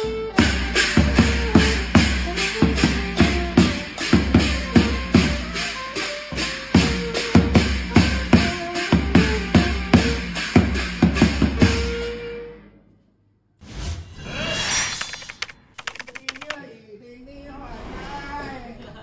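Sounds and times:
saxophone melody: 0.0 - 10.4
large drum beaten with mallet: 0.4 - 12.0.

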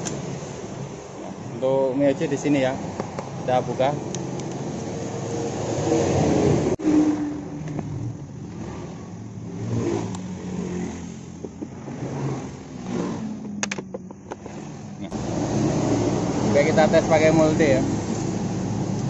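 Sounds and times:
sharp clicks and rattles: 12.8 - 14.7.

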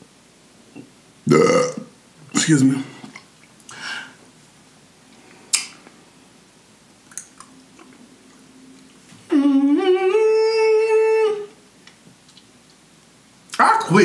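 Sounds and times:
lip smack: 5.5 - 6.0
man humming: 9.3 - 11.6
faint chewing: 12.2 - 12.8.

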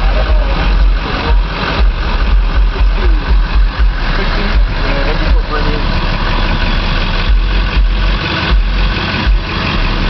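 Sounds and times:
deep pounding bass from subwoofers: 0.0 - 10.0.

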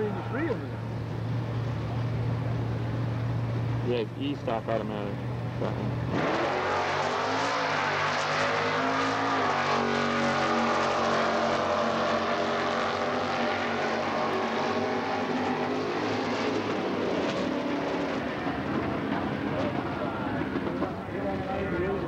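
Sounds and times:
drag car engine accelerating: 5.5 - 22.0.

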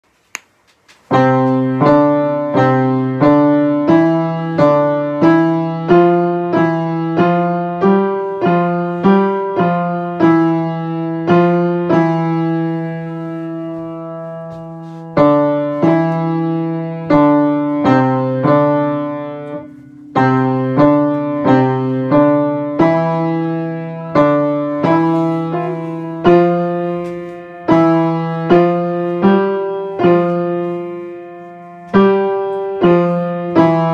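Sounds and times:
slow piano playing: 1.1 - 33.9.

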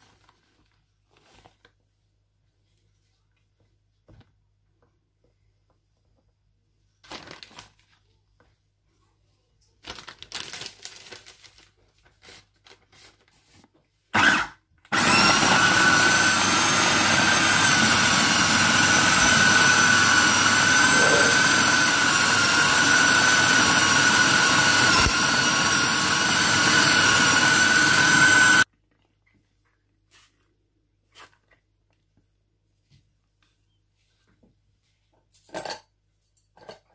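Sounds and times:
food processor motor whining: 14.2 - 28.7.

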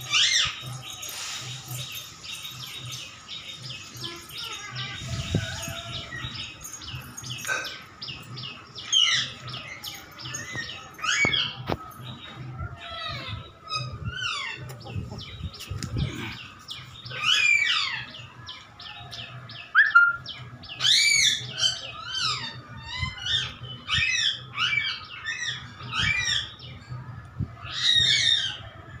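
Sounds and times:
puppies squeaking: 0.0 - 16.4.

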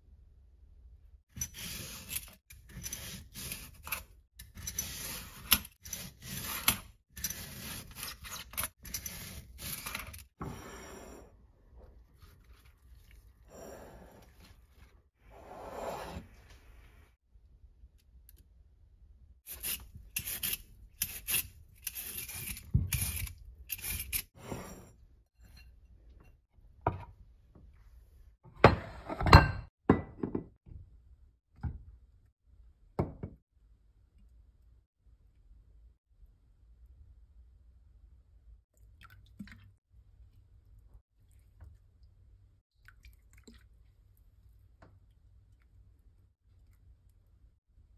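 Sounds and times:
peeler shredding carrot: 1.4 - 10.3, 19.5 - 24.4.

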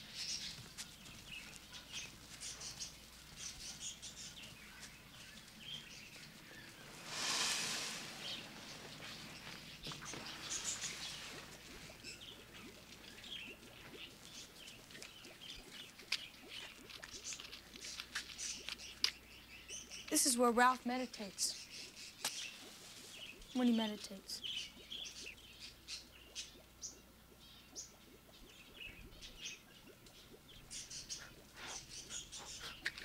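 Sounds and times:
paper screen door sliding: 6.9 - 9.0.

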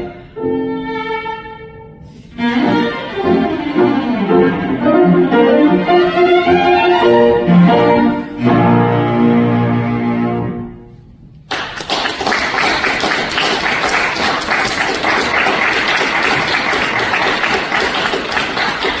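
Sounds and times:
audience applause: 11.5 - 19.0.

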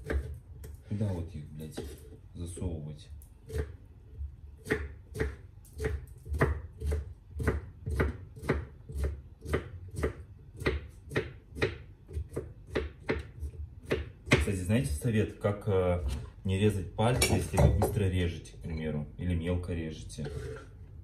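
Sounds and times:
knife chopping on wooden board: 0.0 - 0.8, 3.5 - 3.8, 4.6 - 14.6.

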